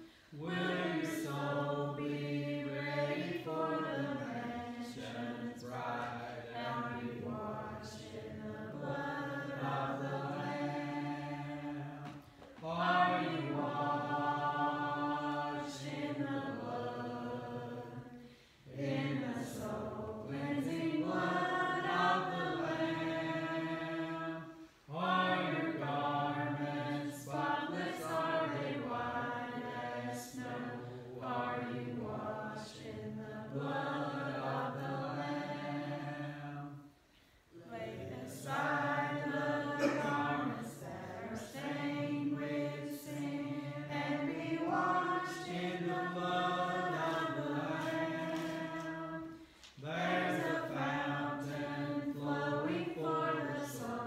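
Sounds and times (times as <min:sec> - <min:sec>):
congregation singing a hymn: 0:00.0 - 0:54.0.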